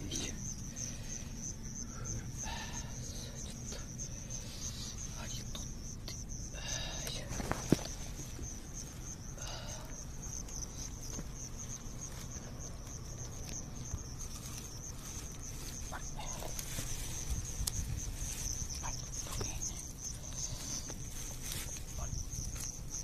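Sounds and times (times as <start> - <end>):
insects trilling: 0.0 - 23.0
rustling in grass: 5.7 - 23.0.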